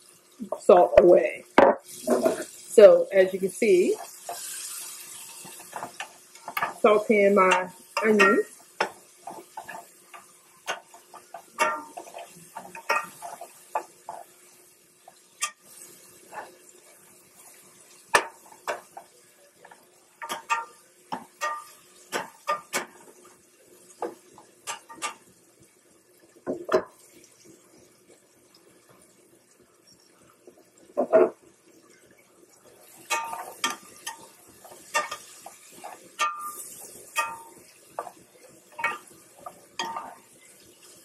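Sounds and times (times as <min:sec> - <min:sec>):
faint sizzle: 0:00.0 - 0:41.0
utensil clinking and scraping pan: 0:07.4 - 0:14.3, 0:20.2 - 0:22.9, 0:33.0 - 0:40.2.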